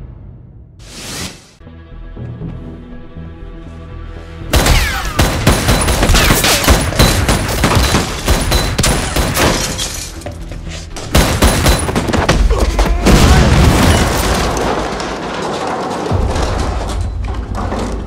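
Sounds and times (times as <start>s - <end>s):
debris smashing and breaking: 11.4s - 18.0s.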